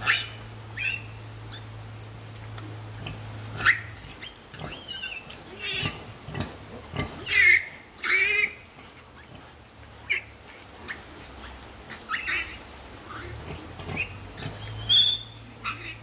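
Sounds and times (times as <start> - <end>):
piglets squealing: 0.0 - 1.7, 3.6 - 8.6, 9.2 - 16.0.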